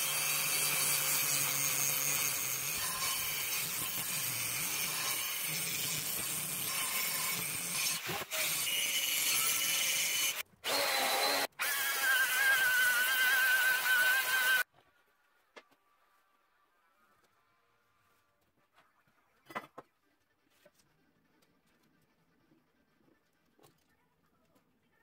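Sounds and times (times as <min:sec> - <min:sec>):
angle grinder grinding steel: 0:00.0 - 0:14.7.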